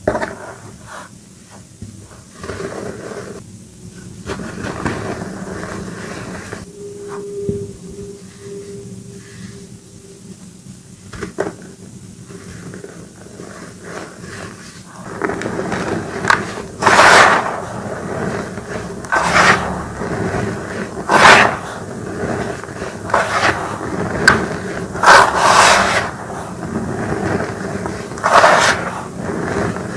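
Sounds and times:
hands pressing chalk powder: 12.3s - 29.9s.

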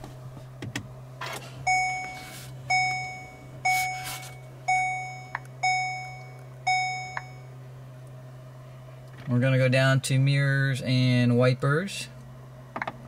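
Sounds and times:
steady low hum: 0.0s - 13.0s
car warning chime: 1.6s - 7.6s.

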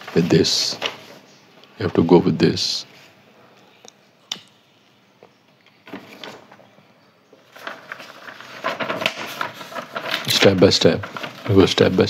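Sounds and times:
paper rustling: 0.0s - 1.3s, 5.8s - 6.6s, 7.4s - 12.0s.

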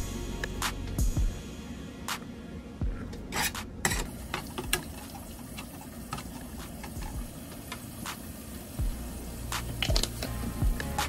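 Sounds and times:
utensils scraping metal pans: 3.2s - 7.2s.

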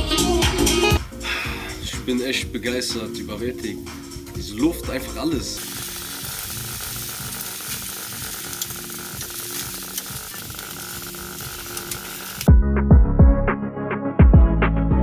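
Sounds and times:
meat sizzling on a grill: 5.6s - 12.5s.

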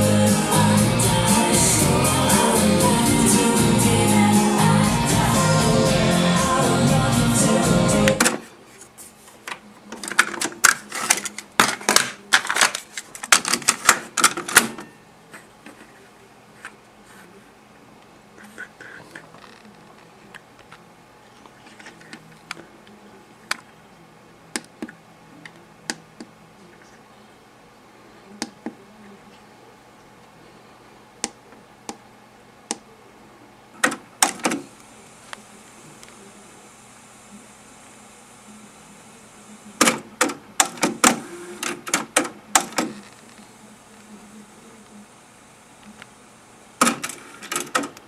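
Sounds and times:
plastic clicks and clatters: 9.5s - 14.7s.

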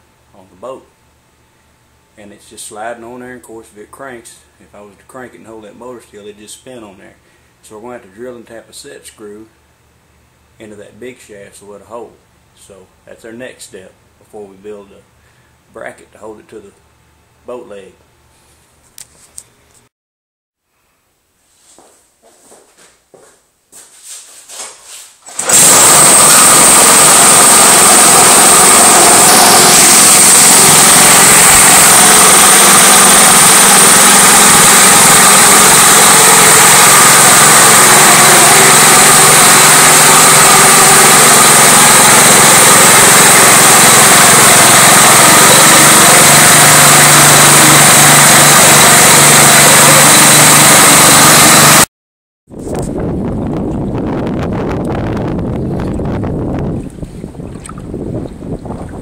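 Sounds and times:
propeller churning water: 25.3s - 51.9s, 55.2s - 59.0s
small engine running loud: 25.3s - 51.9s.

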